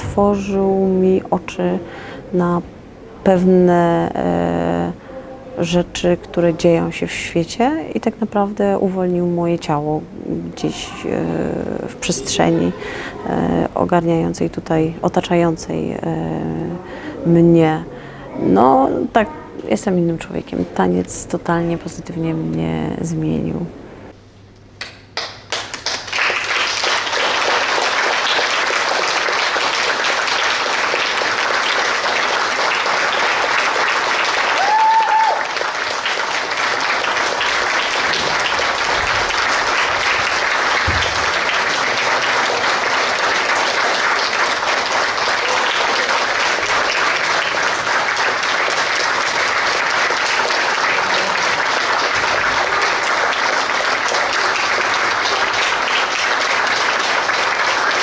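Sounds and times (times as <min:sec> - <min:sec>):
audience applauding: 0:25.2 - 0:58.0.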